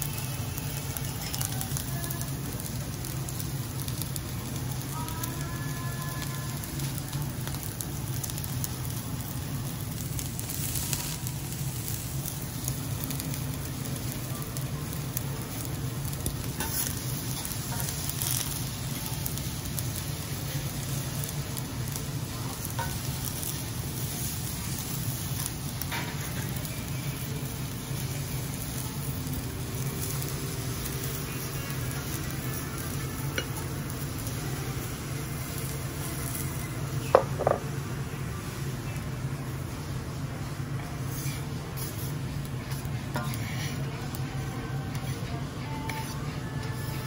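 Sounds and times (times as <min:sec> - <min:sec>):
rice sizzling on a hot griddle: 0:00.0 - 0:47.0
metal spatulas scraping and tapping: 0:42.6 - 0:43.8.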